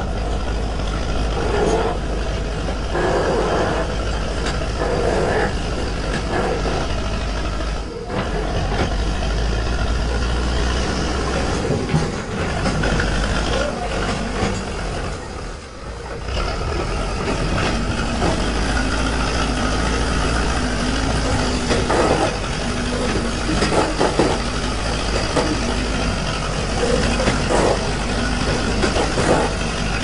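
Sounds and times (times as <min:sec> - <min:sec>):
diesel engine running: 0:00.0 - 0:30.0
loader bucket digging dirt and rock: 0:16.5 - 0:30.0.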